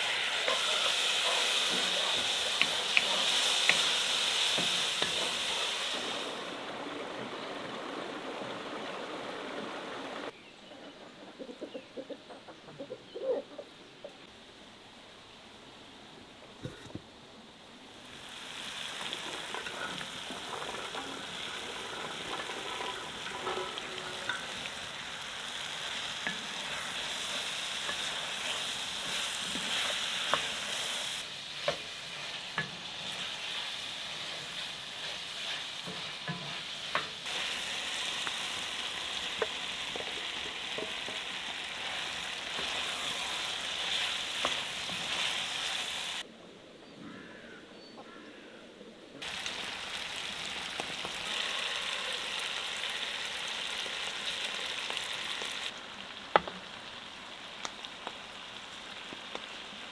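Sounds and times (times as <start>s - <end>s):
food sizzling in a skillet: 0.0s - 8.0s, 18.0s - 46.2s, 49.2s - 59.9s.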